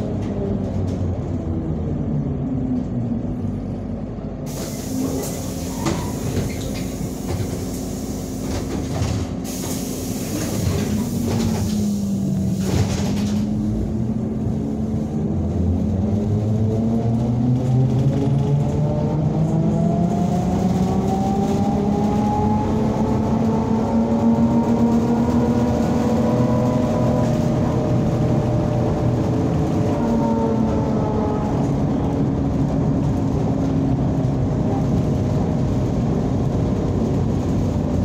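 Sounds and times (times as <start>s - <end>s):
trolleybus motor whining: 0.0s - 16.9s.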